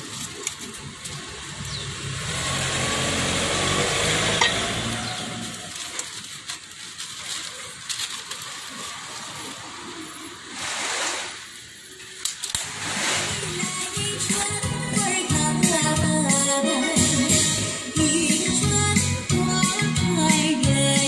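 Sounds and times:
newspaper rustling and crinkling: 0.0s - 2.4s, 4.6s - 11.3s, 12.2s - 15.3s
low vehicle engine hum: 0.0s - 6.8s.

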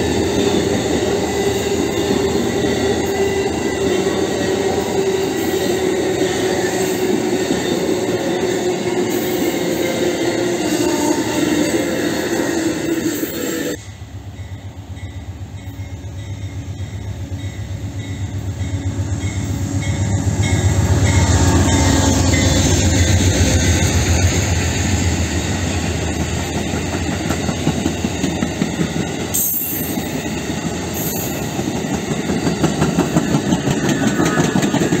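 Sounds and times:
diesel locomotive engine: 0.0s - 35.0s
train wheels clattering over rail joints: 31.5s - 35.0s.

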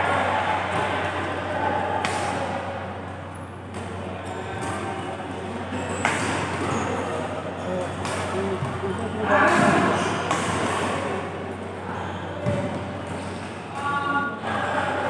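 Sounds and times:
racket hitting shuttlecock: 2.0s - 2.5s, 5.9s - 7.2s, 7.8s - 8.8s, 9.4s - 11.3s.

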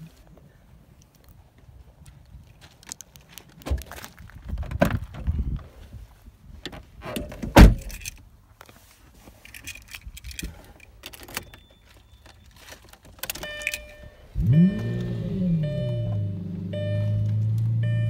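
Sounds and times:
car keys jangling and clicking: 7.1s - 8.2s, 9.4s - 15.2s
short electronic tone: 13.4s - 18.0s.

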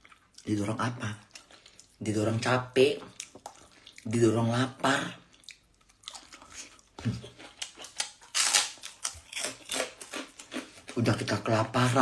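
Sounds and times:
person chewing food: 0.0s - 2.2s, 3.0s - 4.6s, 5.2s - 11.4s
lip smacks: 3.1s - 4.1s.

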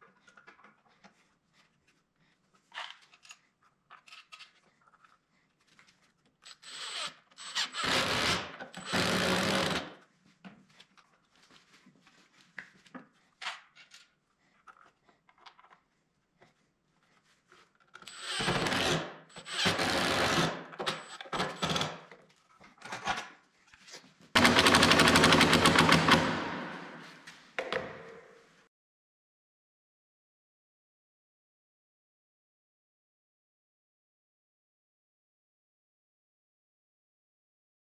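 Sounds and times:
impact driver driving screws: 6.4s - 10.0s, 18.0s - 22.1s, 24.4s - 27.0s.

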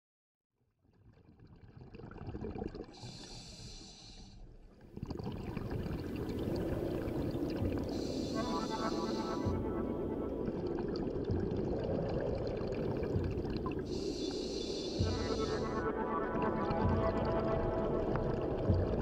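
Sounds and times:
rumble of exhaled bubbles: 0.9s - 3.5s, 4.8s - 19.0s
regulator inhalation hiss: 3.0s - 4.4s, 7.8s - 9.7s, 13.9s - 15.9s.

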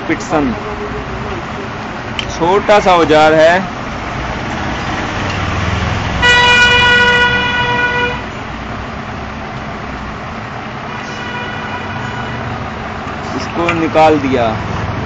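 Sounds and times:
low traffic rumble: 0.0s - 15.0s
vehicle horn held note: 6.2s - 8.2s.

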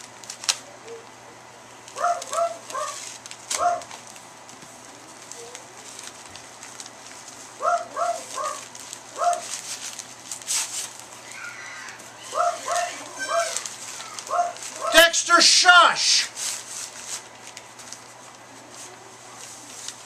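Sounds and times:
package rustling: 0.0s - 0.7s, 1.8s - 20.0s
small dog yapping: 2.0s - 3.9s, 7.6s - 8.6s, 9.2s - 9.5s, 11.3s - 15.1s.

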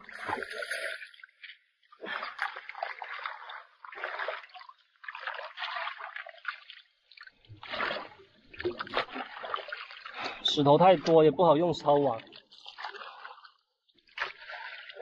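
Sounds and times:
feet wading in shallow water: 0.0s - 15.0s
hand net swept through water: 7.6s - 10.4s.

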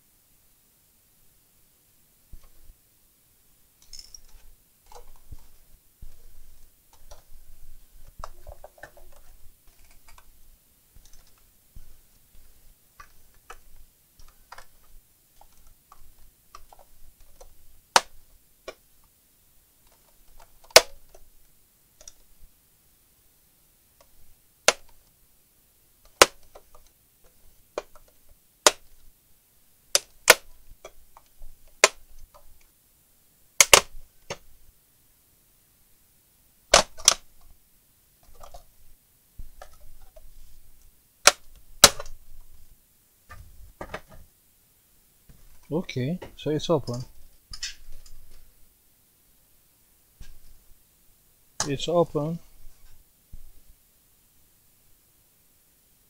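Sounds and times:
plastic scraping and handling: 8.0s - 10.3s, 38.2s - 38.7s
plastic clips snapping loose: 20.6s - 21.2s, 24.7s - 25.0s, 26.1s - 26.9s, 27.8s - 28.9s, 29.9s - 32.4s, 33.6s - 34.4s, 36.7s - 37.2s, 41.2s - 42.2s.

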